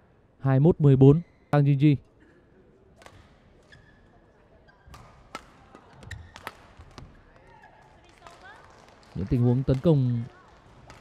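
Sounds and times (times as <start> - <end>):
shoe squeaks: 3.6 - 4.9
racket striking shuttlecock: 4.9 - 7.1.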